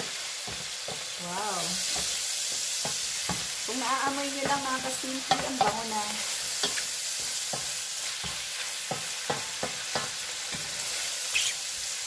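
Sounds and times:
sausage and mushrooms sizzling: 0.0 - 12.0
wooden spoon knocking pot: 4.4 - 5.9.

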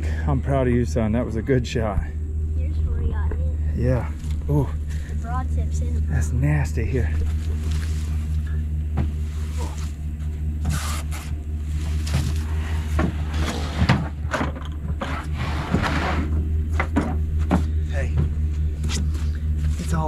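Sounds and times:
pickup truck engine idling: 0.0 - 20.0
carcass dragging and scraping: 6.8 - 14.3, 15.0 - 16.4.

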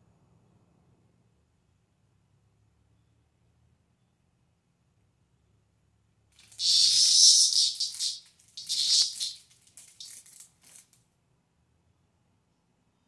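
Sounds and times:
cicada buzzing: 6.5 - 9.4, 10.0 - 10.2.

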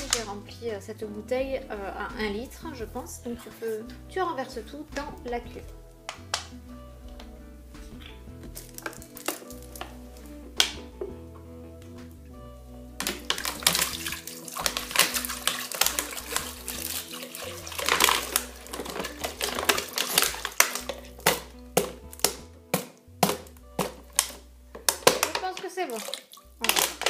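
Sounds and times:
background music with low notes: 0.0 - 27.0
water pouring into steel bowl: 13.0 - 21.4, 25.9 - 27.0.

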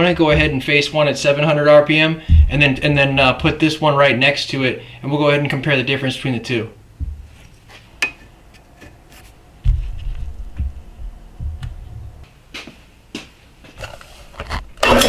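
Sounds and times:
low thumps: 0.1 - 0.7, 2.2 - 3.8, 7.0 - 7.4, 9.5 - 12.3.

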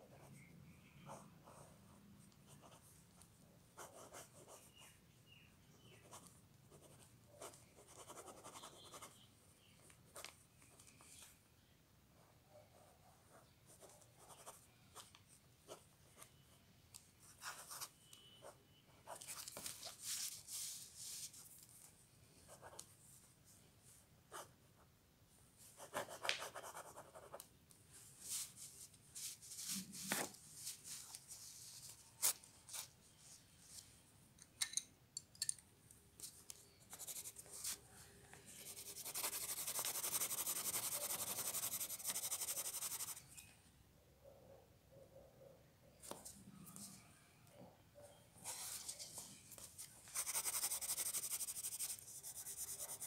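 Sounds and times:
pen scratching on paper: 2.5 - 2.9, 3.8 - 4.8, 6.0 - 9.2, 25.8 - 27.4, 38.6 - 43.2, 50.1 - 53.0.

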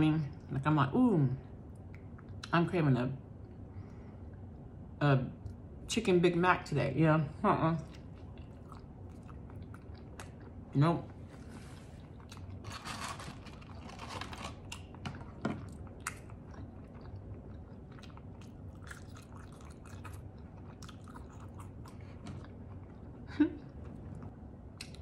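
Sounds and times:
close-up chewing: 7.8 - 25.0
paper carton rustling: 12.6 - 14.7.

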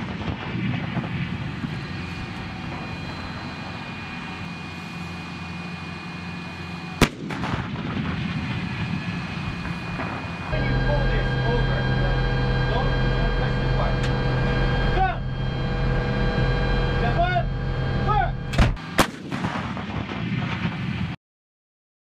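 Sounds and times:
howitzer shot rumbling: 0.0 - 21.2
sharp gunshot report: 7.0 - 8.7, 18.5 - 21.2.

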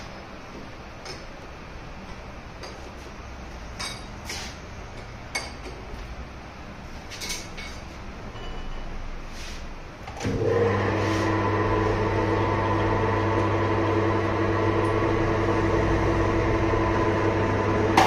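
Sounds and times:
lathe humming: 10.2 - 18.0.

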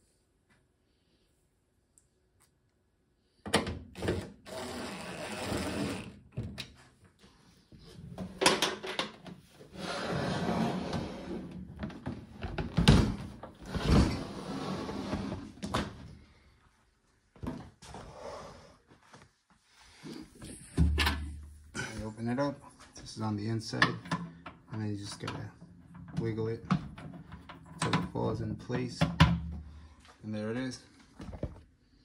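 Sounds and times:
cordless drill driving screws: 4.0 - 6.2.

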